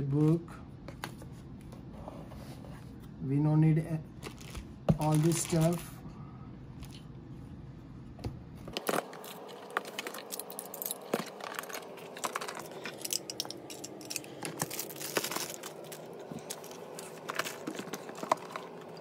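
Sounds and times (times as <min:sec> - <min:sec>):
small hard objects clattering: 0:04.2 - 0:05.8, 0:08.7 - 0:19.0
plastic bags crinkling: 0:04.2 - 0:05.9, 0:08.7 - 0:19.0.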